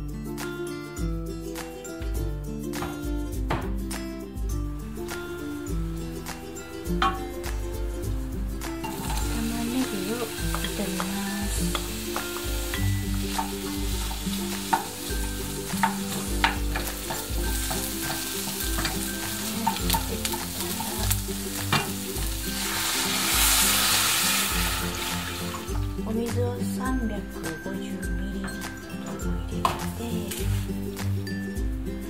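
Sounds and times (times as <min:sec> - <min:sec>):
onions sizzling in a pan: 0:04.8 - 0:26.1, 0:29.0 - 0:31.6
wooden spatula scraping a pan: 0:13.2 - 0:25.6.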